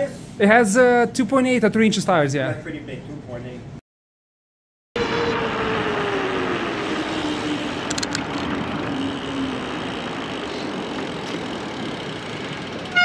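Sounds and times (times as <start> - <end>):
electric motor whine: 5.0 - 13.0
wind and road noise: 5.0 - 13.0
quick clicks: 7.8 - 8.6.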